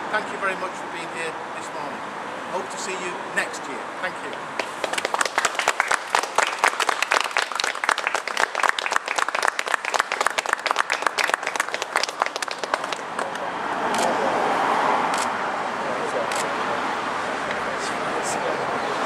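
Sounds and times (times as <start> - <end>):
passing road traffic: 0.0 - 19.0
people clapping: 4.6 - 13.5.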